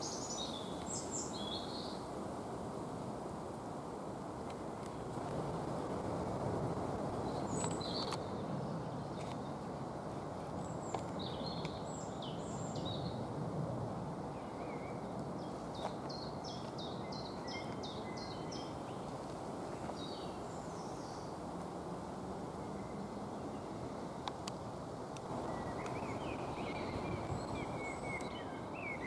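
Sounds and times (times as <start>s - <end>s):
songbirds singing: 0.0s - 2.1s, 7.1s - 9.7s, 10.5s - 13.3s, 14.3s - 21.4s, 22.5s - 29.0s
low rushing background noise: 0.0s - 29.0s.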